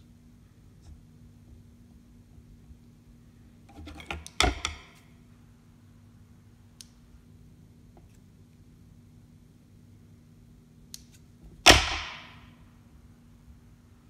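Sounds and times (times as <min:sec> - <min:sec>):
faint steady hum: 0:00.0 - 0:14.0
tools clicking and knocking on table: 0:03.7 - 0:05.0.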